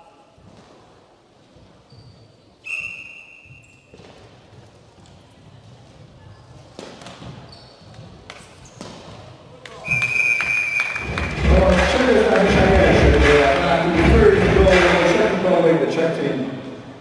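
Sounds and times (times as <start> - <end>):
referee's whistle: 2.6 - 3.9, 9.8 - 11.1.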